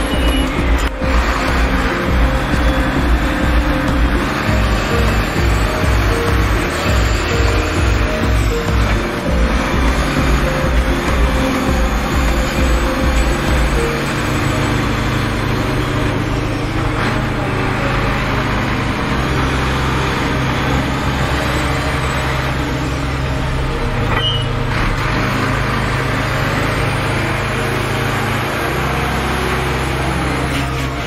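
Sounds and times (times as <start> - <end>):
diesel truck engine droning: 0.0 - 31.0.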